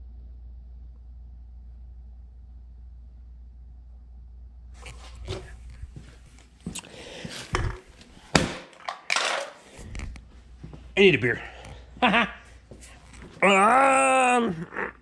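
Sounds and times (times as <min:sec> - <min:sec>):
faint low hum: 0:00.0 - 0:08.3
footsteps on concrete floor: 0:04.8 - 0:08.7, 0:10.2 - 0:11.0, 0:12.6 - 0:13.4
beer can dropped onto cans: 0:07.5 - 0:09.6.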